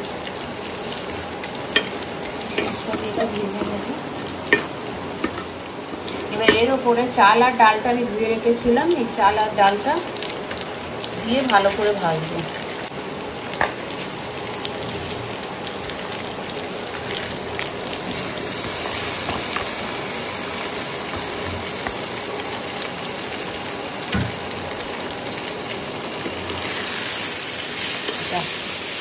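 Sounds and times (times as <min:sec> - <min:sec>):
rice sizzling in hot fat: 0:00.0 - 0:29.0.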